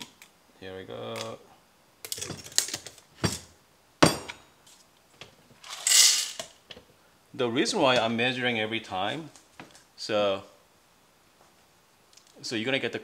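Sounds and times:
beans rattling into grinder hopper: 0:05.6 - 0:06.4
coffee beans clattering into cup: 0:05.6 - 0:06.5.

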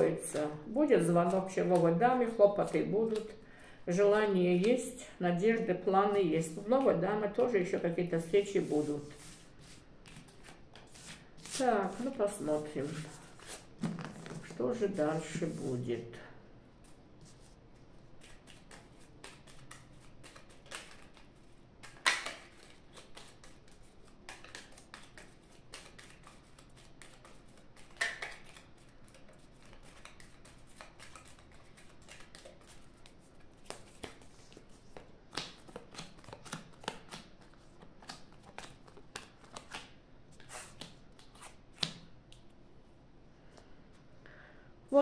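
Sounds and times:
playing cards shuffling: 0:06.4 - 0:15.8, 0:18.2 - 0:42.1.

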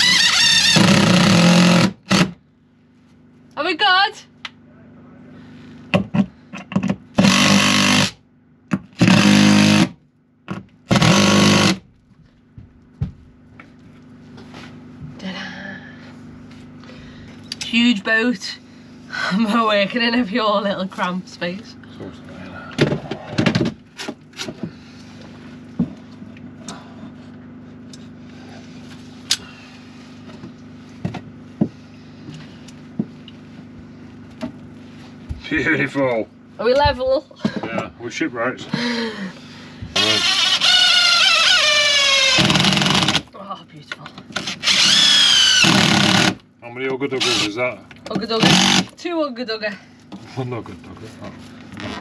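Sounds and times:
cordless drill drilling into wood: 0:00.0 - 0:02.4, 0:07.2 - 0:08.2, 0:09.0 - 0:10.0, 0:10.9 - 0:11.8, 0:40.0 - 0:43.3, 0:44.4 - 0:46.4, 0:47.2 - 0:47.6, 0:48.4 - 0:48.9
low mechanical hum: 0:00.0 - 0:52.0.

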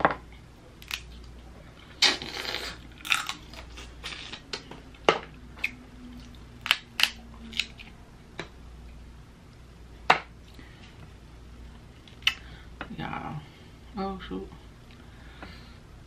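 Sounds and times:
crab shells cracking: 0:00.8 - 0:01.4, 0:03.0 - 0:04.5, 0:06.6 - 0:07.9.

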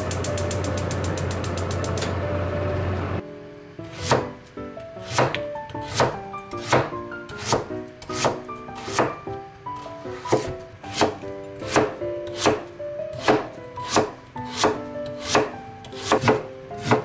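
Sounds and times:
gas igniter clicking: 0:00.0 - 0:02.2
low hum: 0:00.0 - 0:03.2
soft background music: 0:00.0 - 0:17.0
knife slicing onto cutting board: 0:05.1 - 0:07.6.

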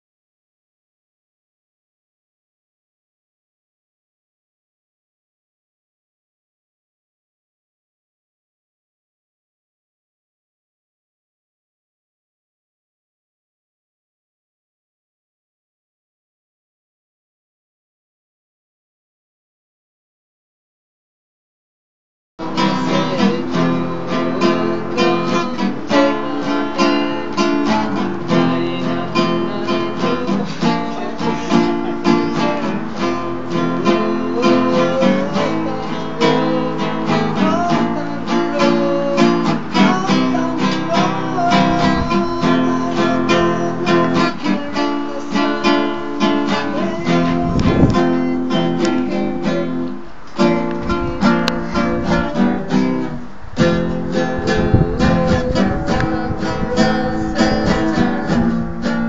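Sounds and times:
acoustic guitar strummed and picked: 0:22.4 - 0:59.0.

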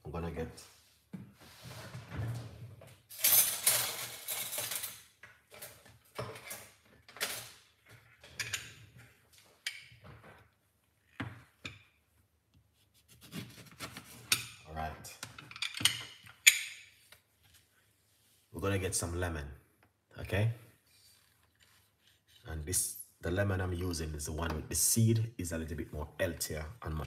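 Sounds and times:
dishes and utensils clattering: 0:03.2 - 0:10.2, 0:15.2 - 0:17.0.

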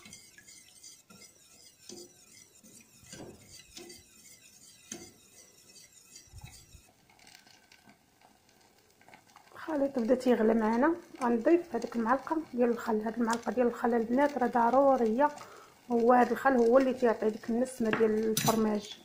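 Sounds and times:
whisk scraping a steel saucepan: 0:00.0 - 0:07.5.

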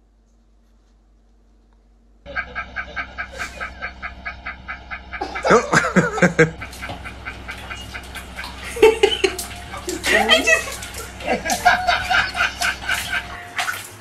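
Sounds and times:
man laughing rapidly: 0:03.2 - 0:04.0, 0:05.2 - 0:07.8, 0:08.5 - 0:13.2.

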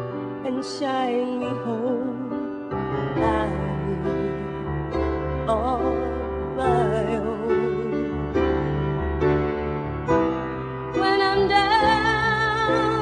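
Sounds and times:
piano accompaniment: 0:00.0 - 0:13.0
wordless voice singing with vibrato: 0:00.4 - 0:08.4, 0:10.9 - 0:13.0.

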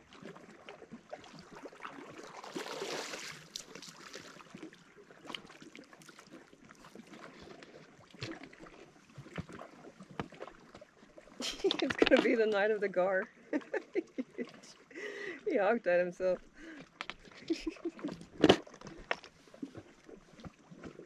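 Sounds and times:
fish splashing in water: 0:00.0 - 0:12.2.

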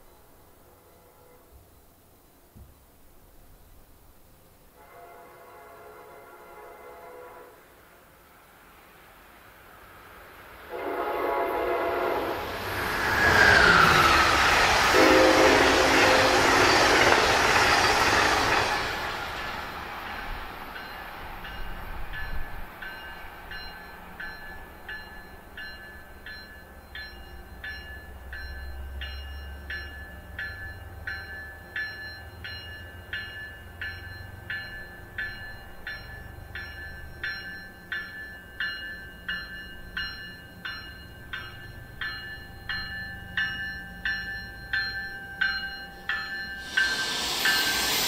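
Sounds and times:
train rumbling: 0:04.7 - 0:48.0
train bell ringing: 0:11.4 - 0:48.0.

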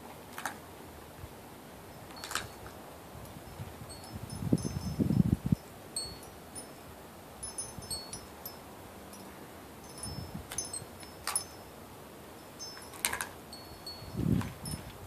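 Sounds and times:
wind chimes tinkling: 0:03.4 - 0:14.9.

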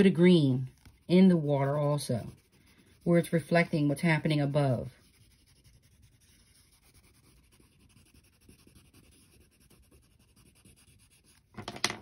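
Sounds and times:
crayon scratching on paper: 0:00.0 - 0:11.6.

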